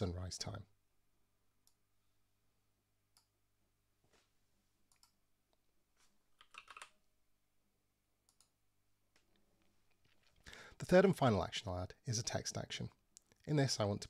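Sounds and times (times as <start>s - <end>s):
computer keyboard keystrokes: 6.4s - 6.9s.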